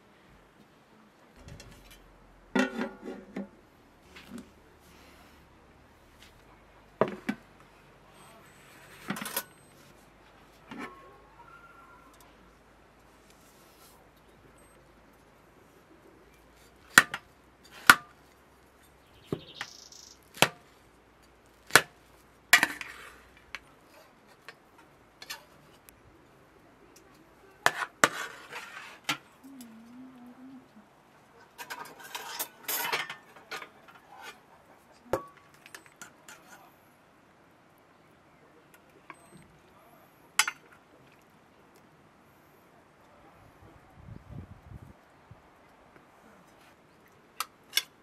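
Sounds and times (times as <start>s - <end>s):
spoon scraping plates: 1.7s - 3.5s, 31.4s - 34.5s
metal spoon clinking on plates: 31.6s - 34.0s.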